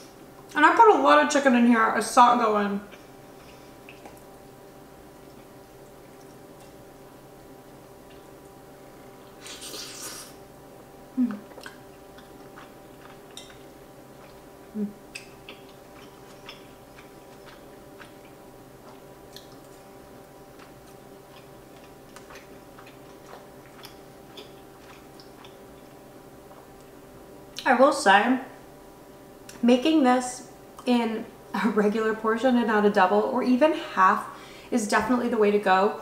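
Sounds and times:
faint steady hum: 0.0s - 36.0s
soft chewing with mouth clicks: 2.8s - 10.4s, 11.2s - 27.7s
low mouth sounds: 11.1s - 11.8s, 14.7s - 15.3s.

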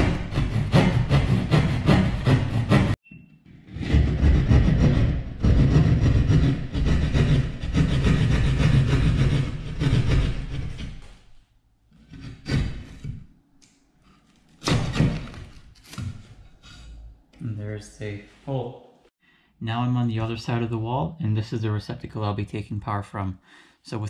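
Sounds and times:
hand saw cutting drywall: 0.0s - 11.3s, 11.9s - 13.3s, 14.2s - 16.9s.

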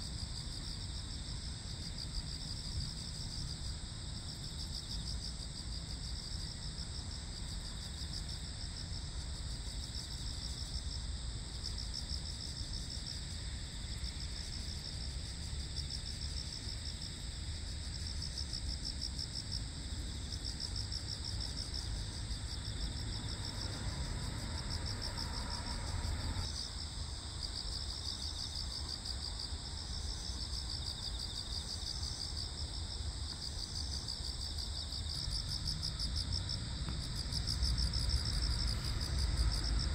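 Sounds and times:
steady high-pitched insect tone: 0.0s - 39.9s.

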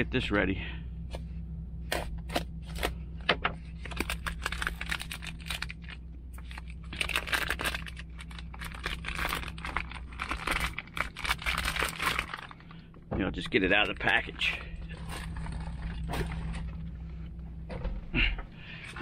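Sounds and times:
steady low hum: 0.0s - 19.0s
plastic packaging crinkling: 3.7s - 12.9s, 13.7s - 16.9s.

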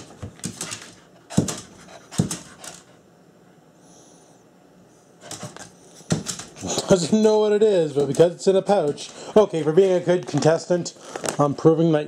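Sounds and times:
dog panting: 0.7s - 3.0s.

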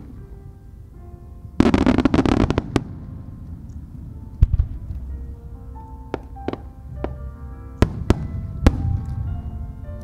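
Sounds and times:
background music: 0.0s - 10.0s
fireworks crackling: 1.6s - 5.2s.

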